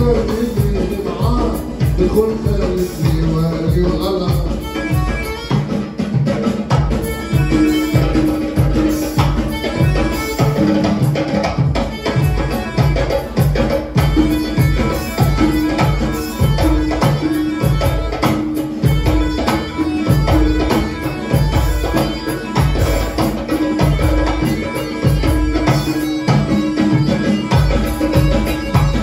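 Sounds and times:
drum kit heavy beat: 0:00.0 - 0:29.0
hand drum: 0:00.0 - 0:29.0
violin: 0:00.0 - 0:29.0
electronic keyboard: 0:06.8 - 0:29.0.

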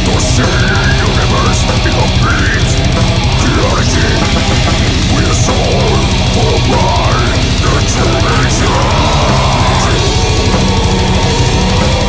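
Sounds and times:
distorted electric guitars: 0:00.0 - 0:12.0.

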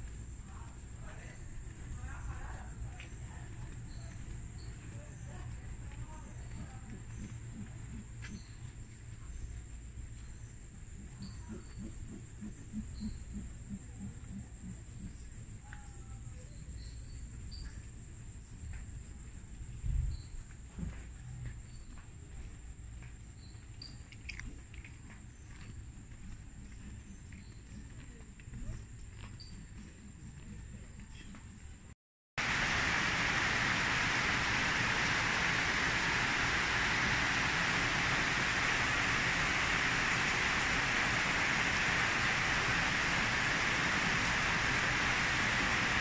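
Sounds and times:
insects droning shrilly: 0:32.4 - 0:46.0
low rumble: 0:32.4 - 0:46.0.

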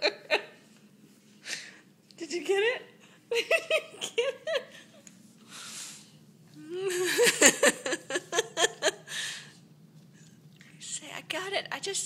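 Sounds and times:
woman laughing: 0:00.0 - 0:00.6, 0:03.3 - 0:04.9, 0:06.7 - 0:09.3
breathy exhale: 0:05.5 - 0:06.2.

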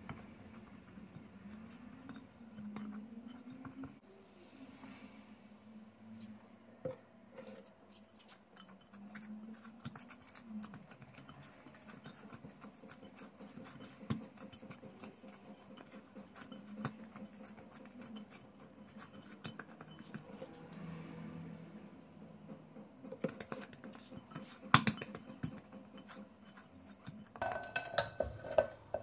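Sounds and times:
hands kneading sticky dough: 0:07.6 - 0:20.9, 0:22.5 - 0:27.4.

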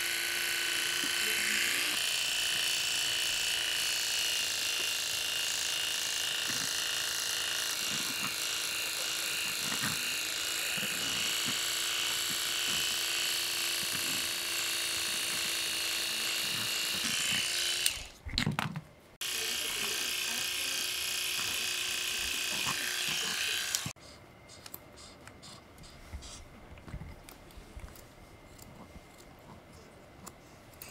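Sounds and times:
electric pet clippers buzzing: 0:00.0 - 0:18.2, 0:19.2 - 0:24.0.

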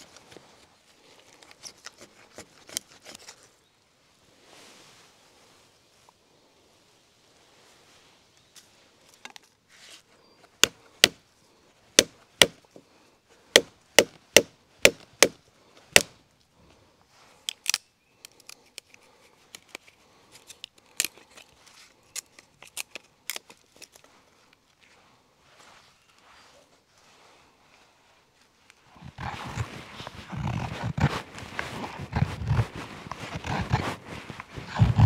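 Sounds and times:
hatchet chopping wood: 0:10.6 - 0:11.2, 0:12.0 - 0:12.6, 0:13.5 - 0:16.2.

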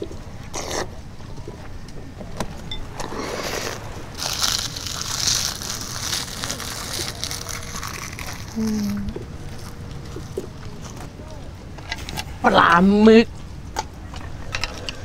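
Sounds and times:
crunching and chewing: 0:00.0 - 0:12.4.

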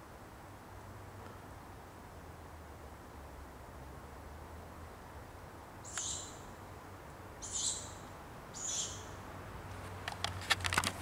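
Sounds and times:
young owl hissing calls: 0:05.8 - 0:06.4, 0:07.4 - 0:09.2
rapid clicks and scrapes: 0:10.0 - 0:11.0.

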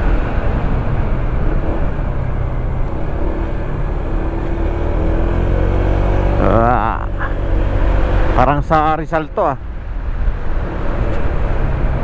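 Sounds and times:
wind rumble on microphone: 0:00.0 - 0:06.4, 0:07.1 - 0:12.0
scooter engine droning: 0:00.0 - 0:08.4.

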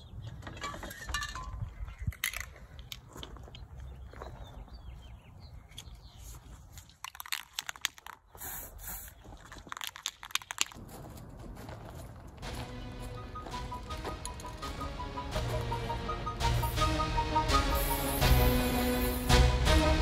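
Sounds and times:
spray can hiss: 0:08.4 - 0:09.1, 0:17.5 - 0:19.5.

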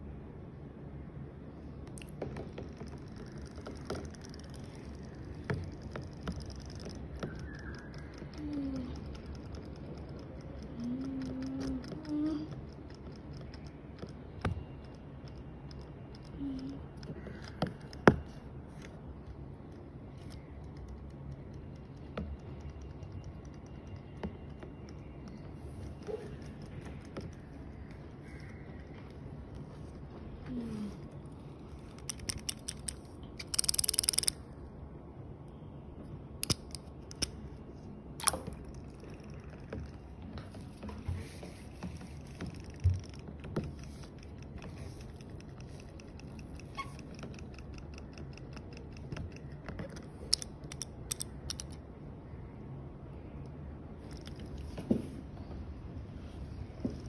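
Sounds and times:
robotic toy fish clicking: 0:02.9 - 0:18.2, 0:31.9 - 0:34.4, 0:36.4 - 0:37.4, 0:38.2 - 0:39.8, 0:42.4 - 0:51.8.

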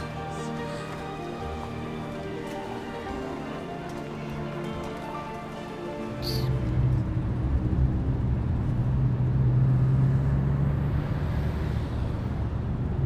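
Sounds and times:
car engine drone inside cabin: 0:06.2 - 0:13.0.

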